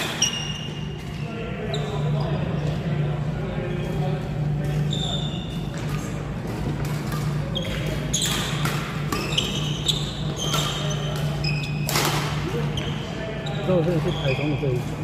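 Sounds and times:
shoes squeaking on court floor: 0.0 - 3.1, 3.7 - 15.0
steady low hum: 0.1 - 13.4
rackets striking shuttlecock: 5.7 - 12.5.

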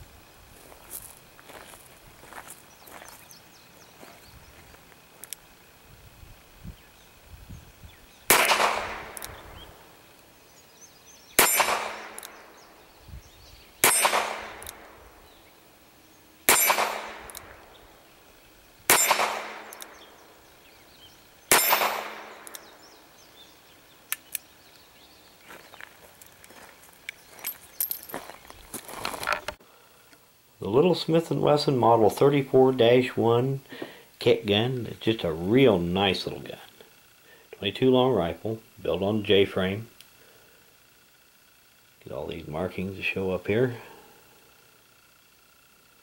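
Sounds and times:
revolver shots: 8.3 - 9.7, 11.4 - 12.5, 13.8 - 15.0, 16.5 - 17.6, 18.9 - 20.1, 21.5 - 22.7
steel target ringing: 11.4 - 12.3, 13.8 - 15.0, 16.5 - 17.4, 18.9 - 20.0, 21.5 - 22.5.

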